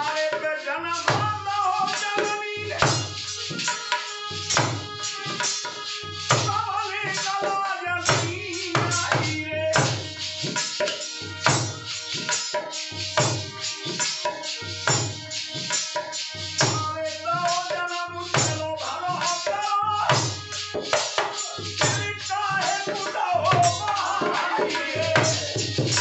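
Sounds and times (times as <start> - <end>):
man singing: 0.0 - 4.1, 6.4 - 10.3, 16.7 - 26.0
dholak drum beat: 0.0 - 26.0.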